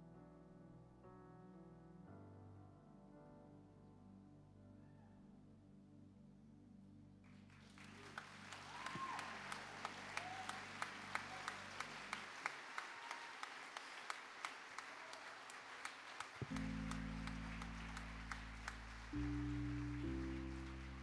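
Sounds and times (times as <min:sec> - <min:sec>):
congregation applauding: 0:07.4 - 0:21.0
sustained keyboard chord: 0:16.4 - 0:21.0.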